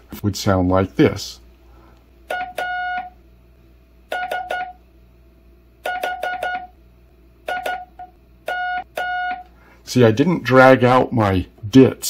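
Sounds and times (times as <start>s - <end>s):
morse code beeps: 2.3s - 3.2s, 4.1s - 4.8s, 5.8s - 6.8s, 7.5s - 9.5s.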